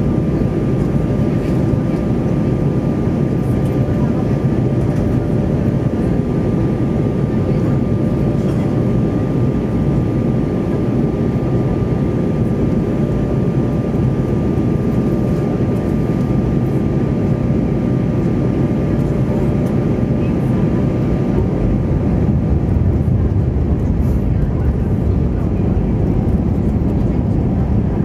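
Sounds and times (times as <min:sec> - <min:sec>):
aircraft cabin engine rush: 0:00.0 - 0:28.0.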